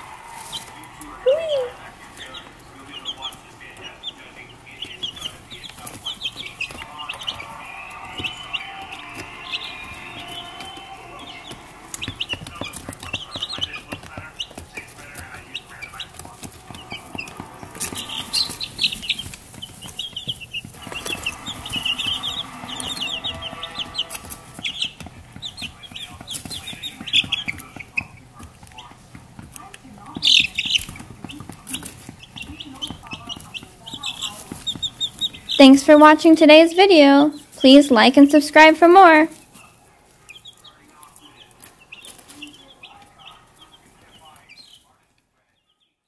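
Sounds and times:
baby chicks peeping: 0.0 - 46.0.

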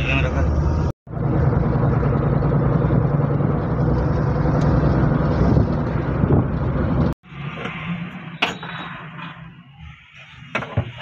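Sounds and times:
car engine and road noise: 0.0 - 11.0.

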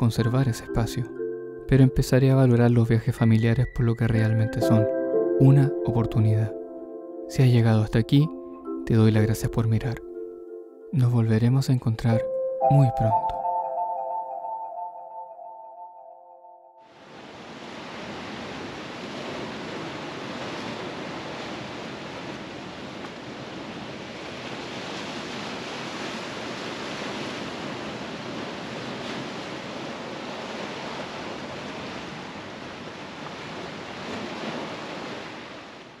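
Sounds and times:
surf washing over rocks: 16.9 - 36.0.

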